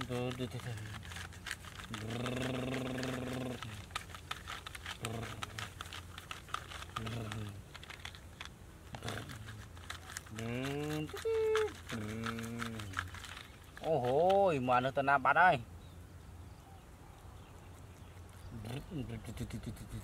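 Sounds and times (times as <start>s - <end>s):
person making wordless sounds: 0.0s - 8.2s, 8.9s - 15.3s, 18.5s - 20.0s
small clicks and crinkles: 0.0s - 14.7s
person humming: 1.9s - 3.9s, 7.0s - 7.6s, 10.3s - 13.1s.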